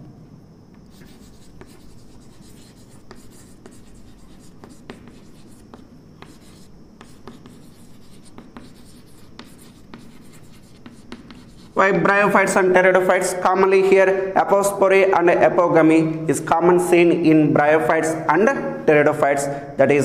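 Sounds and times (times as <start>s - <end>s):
chalk scratching on blackboard: 0.8s - 11.8s
chalk tapping on blackboard: 0.8s - 11.8s.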